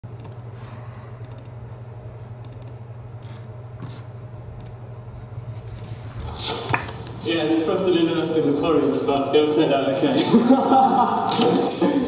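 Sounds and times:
keyboard typing clicks: 0.0s - 0.4s, 1.2s - 1.6s, 2.4s - 2.8s, 4.6s - 4.8s, 5.8s - 6.0s
low electrical hum: 0.0s - 12.0s.

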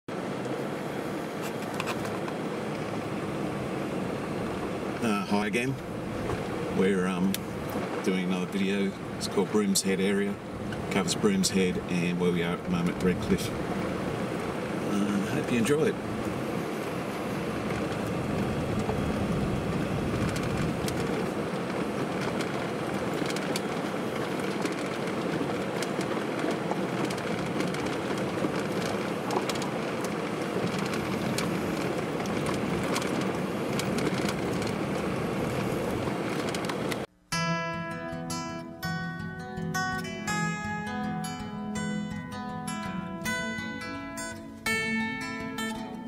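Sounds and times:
vehicle running noise: 0.1s - 37.5s, 38.3s - 46.0s
tyres crunching on gravel: 4.5s - 37.1s.

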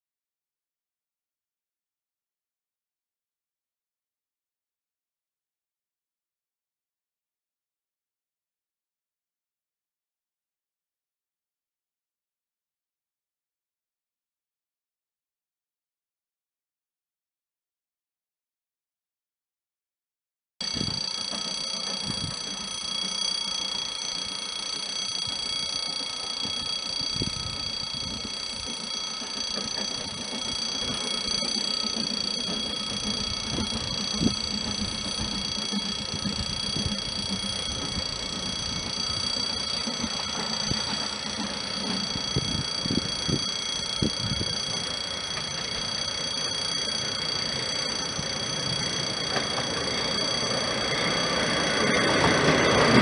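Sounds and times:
level crossing warning ringer: 20.6s - 53.0s
steam locomotive rumbling: 20.8s - 53.0s.

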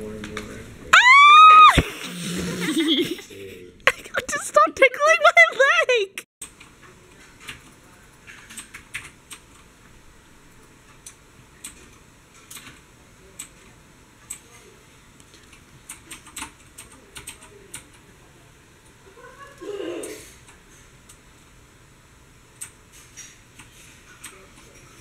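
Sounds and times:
faint room hum: 0.0s - 25.0s
computer keyboard clicking: 7.4s - 9.6s, 15.4s - 18.0s.

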